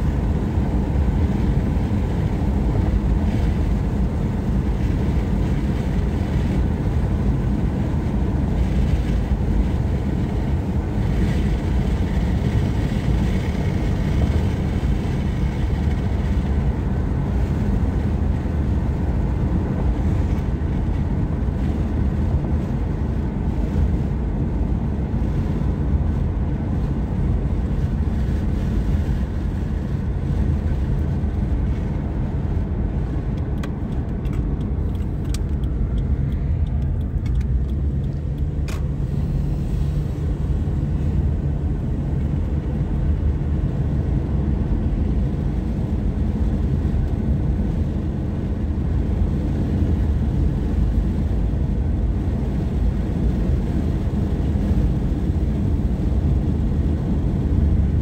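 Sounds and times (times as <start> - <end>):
car cabin road rumble: 0.0 - 58.0
light ticks: 33.4 - 38.9.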